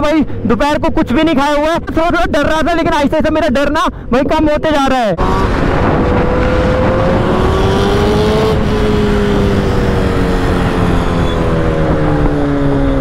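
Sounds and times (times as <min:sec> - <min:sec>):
motorcycle engine running: 0:05.2 - 0:13.0
wind rushing: 0:05.2 - 0:13.0.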